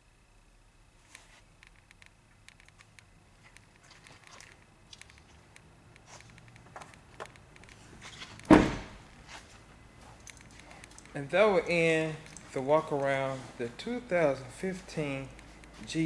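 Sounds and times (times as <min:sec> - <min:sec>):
truck door shutting thud: 0:08.5 - 0:09.0.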